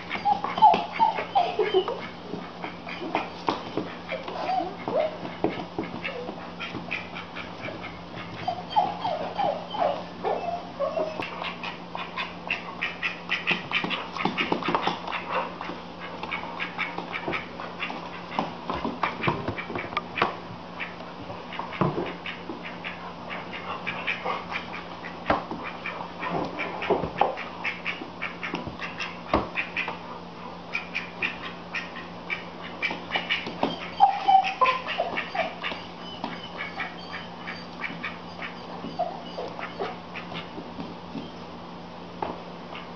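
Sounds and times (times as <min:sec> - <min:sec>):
animal calls: 0:00.0 - 0:20.2, 0:30.6 - 0:41.5
animals scuffing on wooden floor: 0:02.0 - 0:10.1, 0:13.4 - 0:30.0, 0:32.8 - 0:41.5.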